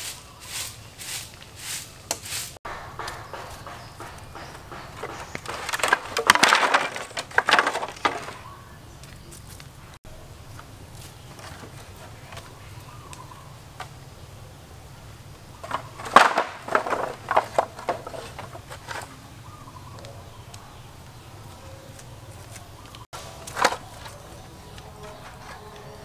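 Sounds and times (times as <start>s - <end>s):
bamboo sections knocking together: 2.1s - 9.2s, 15.6s - 19.2s, 22.0s - 25.8s.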